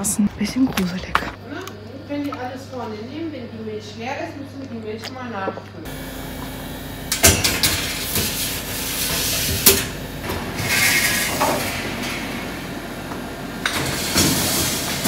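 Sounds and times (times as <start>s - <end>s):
oven fan humming: 5.8s - 15.0s.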